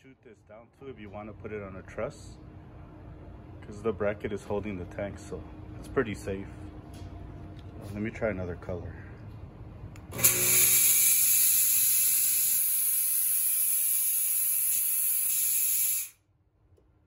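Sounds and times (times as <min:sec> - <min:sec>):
low hum: 0:00.0 - 0:10.6
fog machine hissing: 0:10.2 - 0:16.2.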